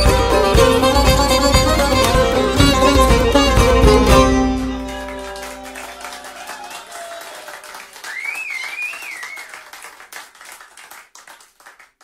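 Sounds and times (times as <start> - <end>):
string music: 0.0 - 6.4
hand clapping: 0.0 - 12.0.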